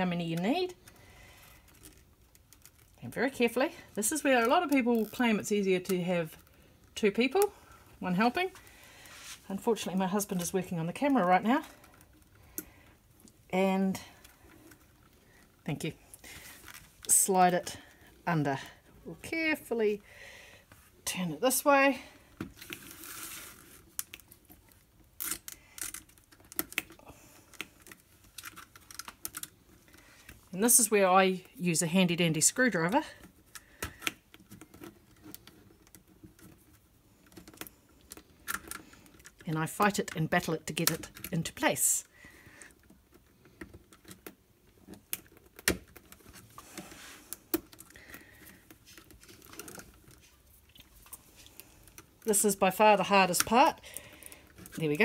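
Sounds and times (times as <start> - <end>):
rustle: 22.6 - 23.9.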